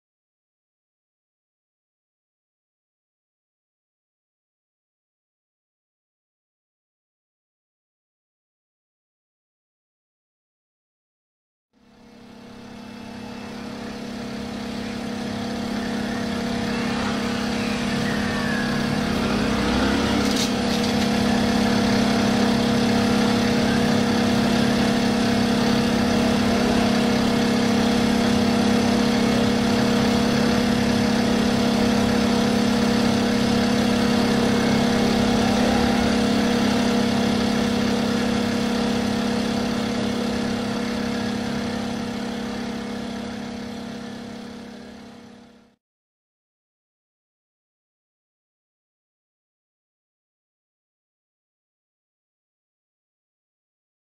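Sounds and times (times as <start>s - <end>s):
motorcycle engine droning: 11.8s - 45.8s.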